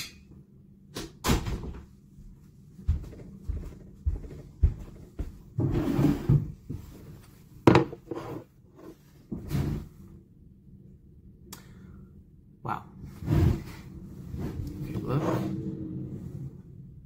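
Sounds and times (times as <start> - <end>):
plate set down on table: 7.6 - 8.2.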